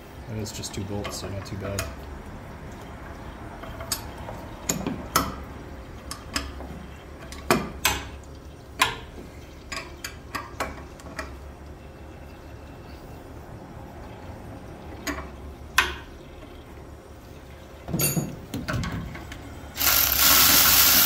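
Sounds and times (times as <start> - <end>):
metal tools clinking on iron: 17.9 - 18.4.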